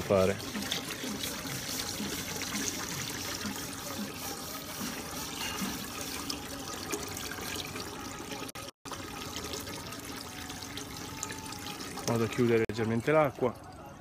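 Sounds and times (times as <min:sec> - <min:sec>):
water running from a hose: 0:00.0 - 0:13.6.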